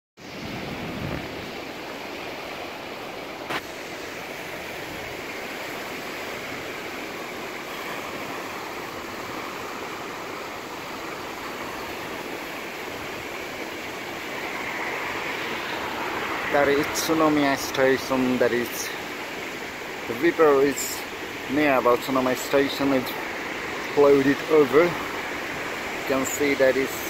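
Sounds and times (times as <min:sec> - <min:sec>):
river water rushing: 0:00.2 - 0:27.0.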